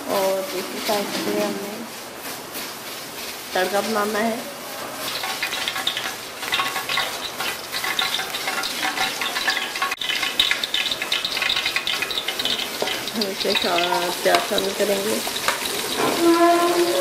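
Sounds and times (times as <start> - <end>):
ghee sizzling and crackling in pot: 4.8 - 17.0.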